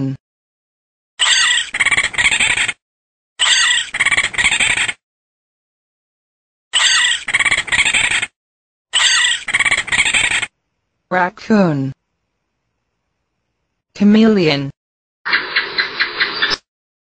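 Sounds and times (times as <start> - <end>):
raccoon high-pitched calls: 1.2 - 2.7, 3.4 - 4.9, 6.8 - 8.3, 9.0 - 10.5.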